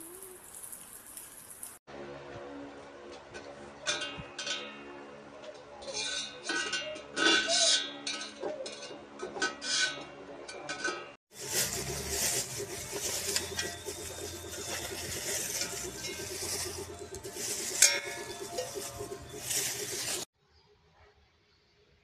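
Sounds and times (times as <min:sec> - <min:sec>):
steady low hum: 0:11.4 - 0:20.3
metal blade clinking on steel bowl: 0:11.8 - 0:20.2.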